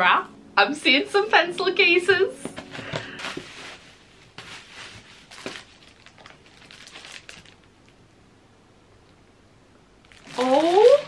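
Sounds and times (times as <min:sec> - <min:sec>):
bubble wrap crinkling: 0:02.6 - 0:08.1, 0:10.0 - 0:11.0.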